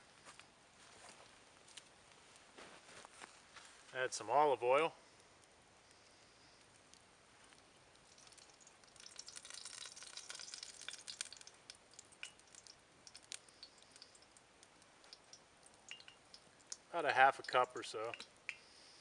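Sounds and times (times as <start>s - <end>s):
small oil pops: 7.6s - 18.7s
oil sizzling in a pot: 8.0s - 17.6s.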